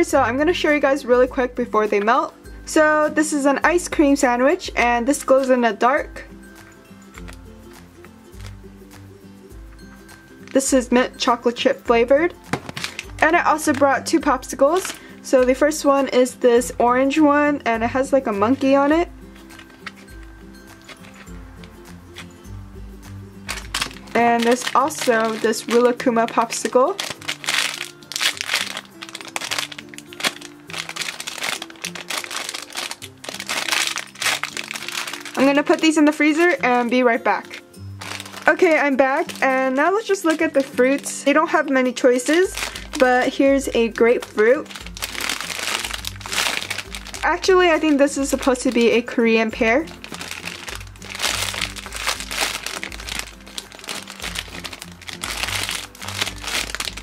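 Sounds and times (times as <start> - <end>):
background music with low notes: 0.0 - 57.0
plastic bag crinkling: 8.3 - 8.6, 12.5 - 15.3, 18.5 - 22.3, 23.4 - 37.0, 38.0 - 49.0, 49.8 - 57.0.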